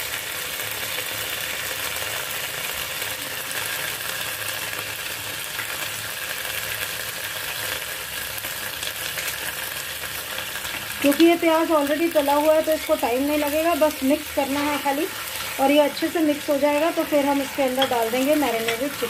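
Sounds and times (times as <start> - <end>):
oil sizzling in a pan: 0.0 - 19.0
spatula stirring: 12.2 - 19.0.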